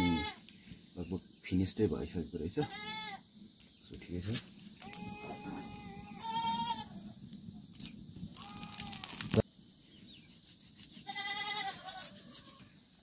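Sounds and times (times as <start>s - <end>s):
goat bleating: 0.0s - 0.4s, 2.6s - 3.2s, 4.8s - 6.9s, 11.0s - 12.1s.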